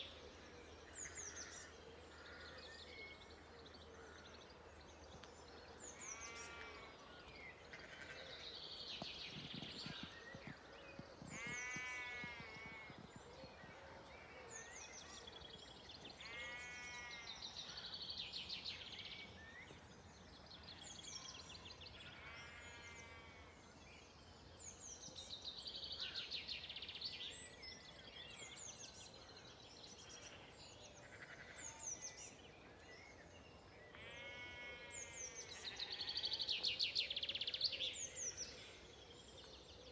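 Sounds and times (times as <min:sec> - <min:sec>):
birds singing: 0:00.0 - 0:39.9
sheep bleating: 0:11.4 - 0:12.9, 0:34.0 - 0:34.9.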